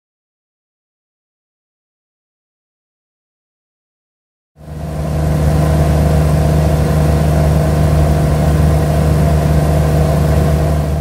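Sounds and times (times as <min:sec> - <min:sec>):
propeller plane engine droning: 0:04.6 - 0:11.0.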